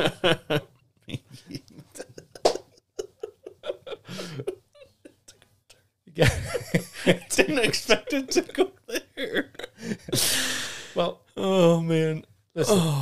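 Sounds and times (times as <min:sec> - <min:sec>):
men laughing quietly: 0:00.0 - 0:05.4, 0:06.2 - 0:11.1.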